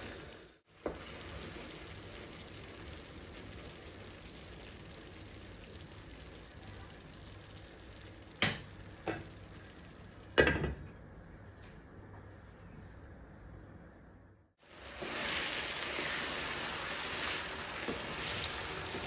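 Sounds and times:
food sizzling in a frying pan: 0:00.0 - 0:10.4, 0:14.6 - 0:19.0.

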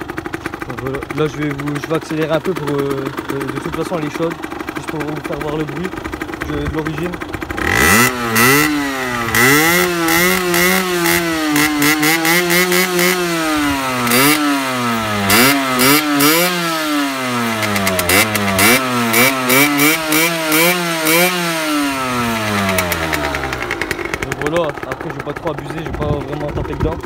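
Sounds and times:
two-stroke motorcycle engine revving: 0:00.0 - 0:27.0.

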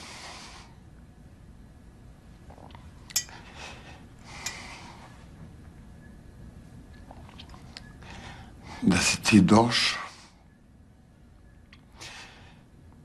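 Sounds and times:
man breathing and sniffing: 0:03.3 - 0:05.4
man speaking tearfully: 0:08.8 - 0:10.2.

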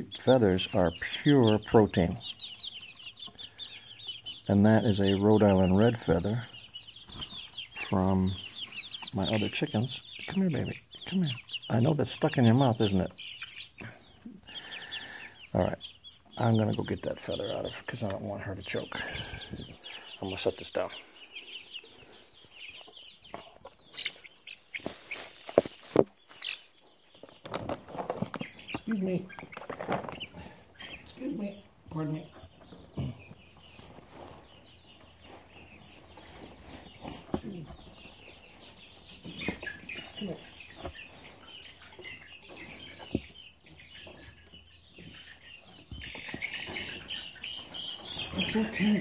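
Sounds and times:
chicks peeping: 0:00.0 - 0:49.0
rustling and handling noise: 0:21.0 - 0:30.3.

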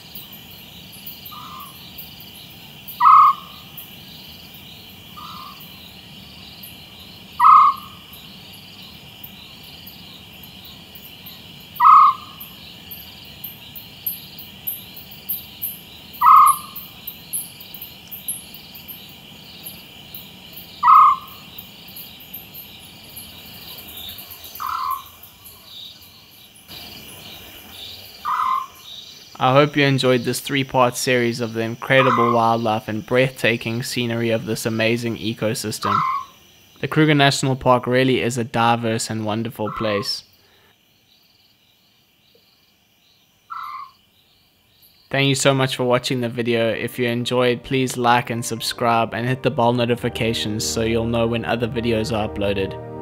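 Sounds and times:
crickets chirring: 0:00.0 - 0:53.0
owl calling: 0:01.2 - 0:02.0, 0:02.9 - 0:03.9, 0:05.1 - 0:06.0, 0:06.6 - 0:08.2, 0:11.7 - 0:13.0, 0:15.3 - 0:17.6, 0:20.8 - 0:21.6, 0:24.0 - 0:25.8, 0:27.8 - 0:29.0, 0:31.9 - 0:32.6, 0:35.8 - 0:36.4, 0:39.6 - 0:40.2, 0:43.5 - 0:44.0.

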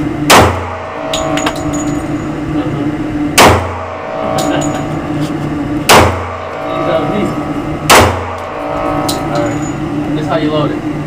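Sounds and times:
steady low hum: 0:00.0 - 0:11.0
pistol shots: 0:00.3 - 0:00.7, 0:03.4 - 0:03.8, 0:05.9 - 0:06.2, 0:07.9 - 0:08.3.

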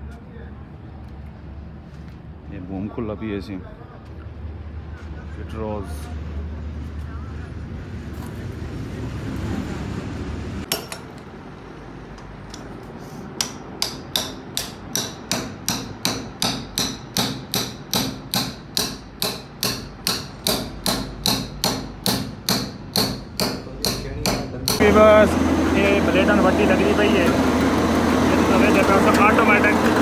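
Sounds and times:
hammer striking metal bearing: 0:10.7 - 0:11.2, 0:13.4 - 0:25.0.

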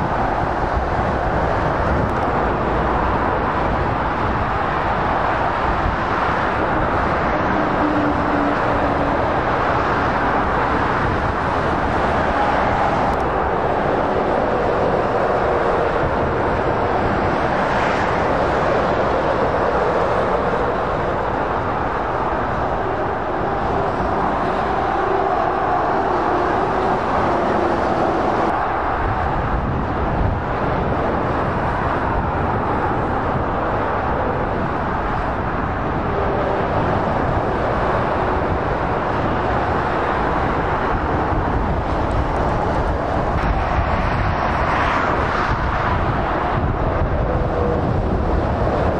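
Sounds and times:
motorway traffic rushing past: 0:00.0 - 0:48.9
truck engine notes: 0:18.2 - 0:43.5.

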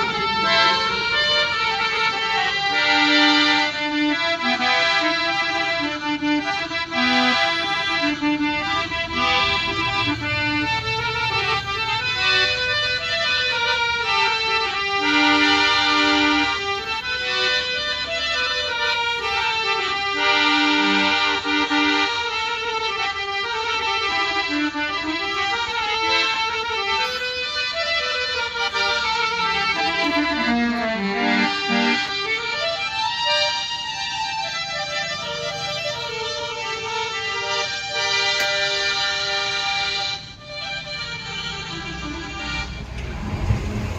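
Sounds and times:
electronic harmonium melody: 0:00.0 - 0:43.9.

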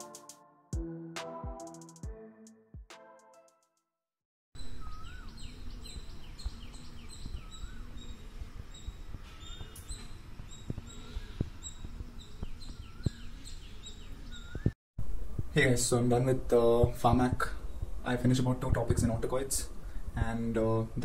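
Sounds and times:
birds chirping: 0:04.6 - 0:14.8
bird whistling: 0:04.7 - 0:05.5, 0:12.6 - 0:14.7.

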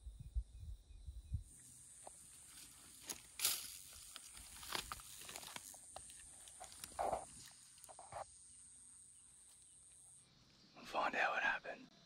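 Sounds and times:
rustling in dry grass and leaves: 0:01.6 - 0:08.5.

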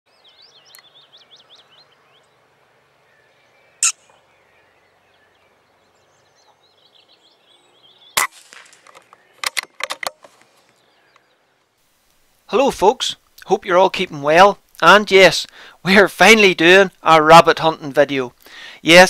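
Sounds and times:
birdsong chirping: 0:00.1 - 0:11.8
air rifle shots: 0:08.2 - 0:09.8.

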